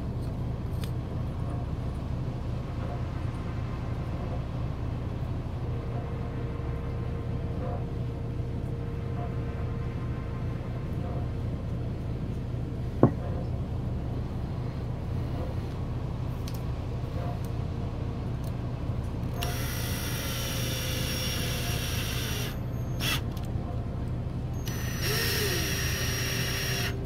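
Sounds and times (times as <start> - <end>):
steady low hum: 0.0 - 27.0
electric screwdriver whirring: 19.4 - 23.2, 24.6 - 27.0.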